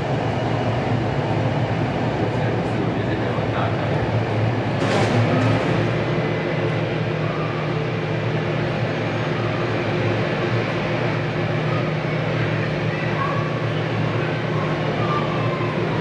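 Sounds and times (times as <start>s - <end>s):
jet engines idling: 0.0s - 16.0s.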